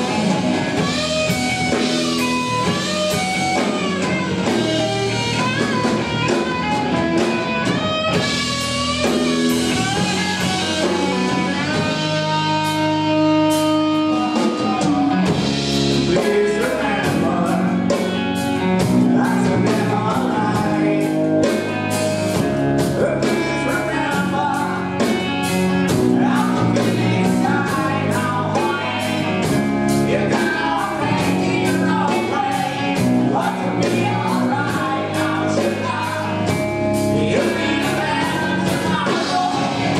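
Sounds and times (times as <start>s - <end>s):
bass guitar: 0.0s - 39.9s
distorted electric guitar: 0.0s - 39.9s
drum kit beat: 0.0s - 39.9s
man singing into microphone: 16.0s - 18.2s, 19.0s - 21.6s, 22.8s - 25.2s, 26.0s - 29.3s, 30.0s - 39.9s.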